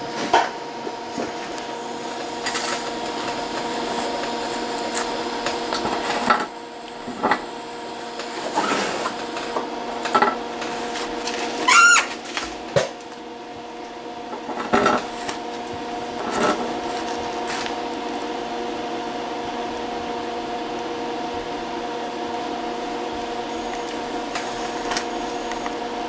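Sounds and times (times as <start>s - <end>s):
welding arc buzzing: 1.0s - 13.2s, 14.2s - 20.6s, 22.3s - 26.0s
welding arc crackles: 1.5s - 12.7s.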